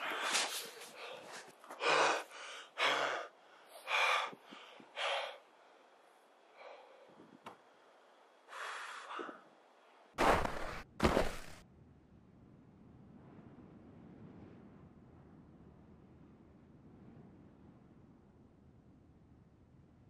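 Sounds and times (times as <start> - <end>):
person breathing hard: 0.0 - 7.4, 8.4 - 9.6.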